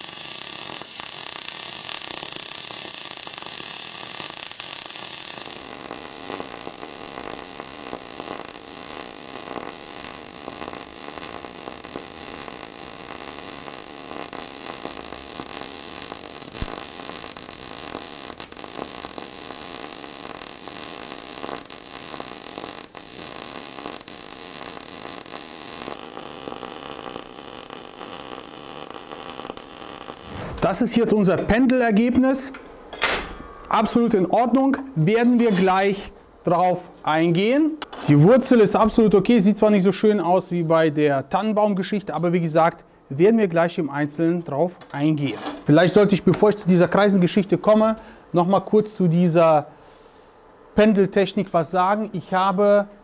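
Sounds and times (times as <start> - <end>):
welding arc crackling buzz: 0.0 - 31.0.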